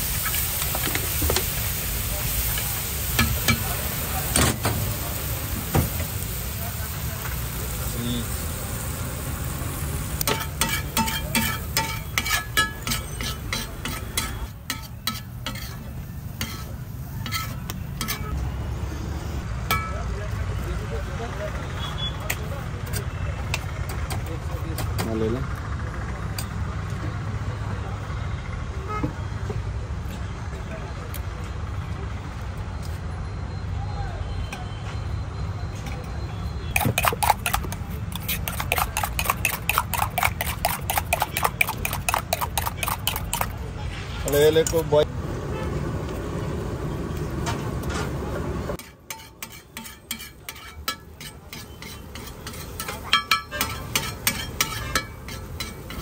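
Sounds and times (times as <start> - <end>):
food sizzling: 0.0 - 19.4, 36.7 - 43.6, 48.8 - 56.0
metal spatula scraping a griddle: 10.2 - 18.4, 36.8 - 44.8, 48.8 - 56.0
spoon clinking in steel bowl: 10.3 - 15.7, 36.8 - 43.5, 48.8 - 56.0.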